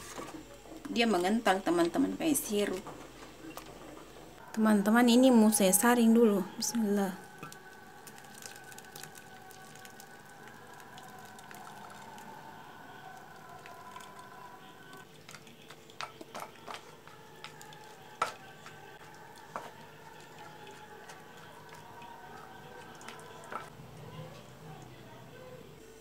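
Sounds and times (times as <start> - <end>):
wooden spoon scraping: 15.2 - 23.7
spoon knocking against strainer: 15.5 - 23.7.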